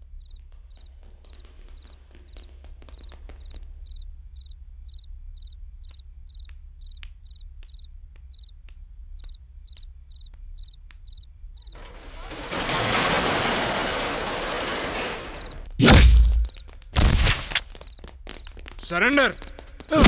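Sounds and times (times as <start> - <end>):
crickets chirping: 3.4 - 11.8.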